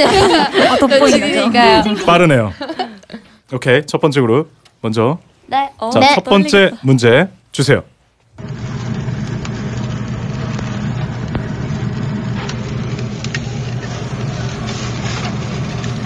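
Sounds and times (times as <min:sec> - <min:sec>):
steak sizzling with pops: 0:08.4 - 0:16.0.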